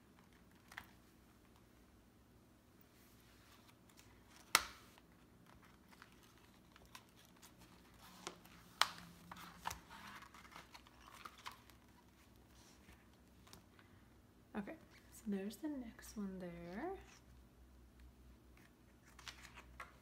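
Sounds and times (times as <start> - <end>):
paper and plastic sheets rustling: 3.2 - 13.8, 18.6 - 20.0.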